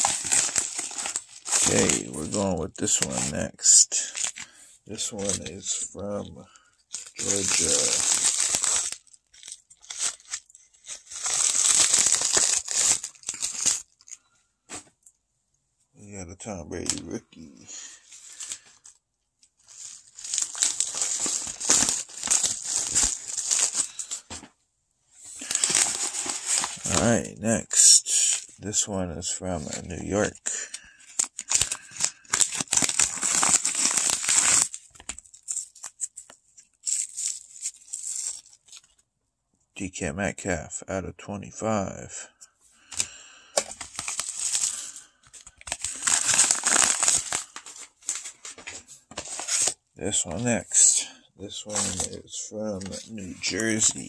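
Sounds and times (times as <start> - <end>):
packaging crinkling and rustling: 0.0 - 15.0, 18.0 - 24.5, 25.2 - 27.3, 28.2 - 39.1, 42.8 - 54.0.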